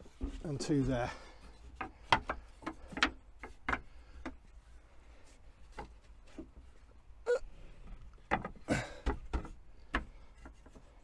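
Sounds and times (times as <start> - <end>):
wooden slats clicking and knocking: 1.4 - 4.6, 5.6 - 6.9, 7.9 - 11.0.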